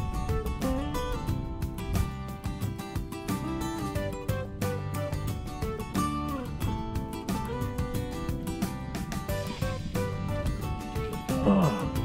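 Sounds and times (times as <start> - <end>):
plucked guitar tune: 0.0 - 12.0.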